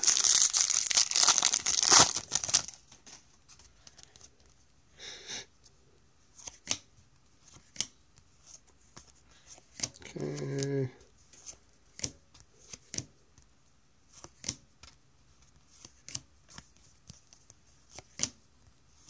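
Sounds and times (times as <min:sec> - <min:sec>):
foil wrapper tearing: 0:00.0 - 0:02.8
wrapper rustling: 0:00.0 - 0:03.2.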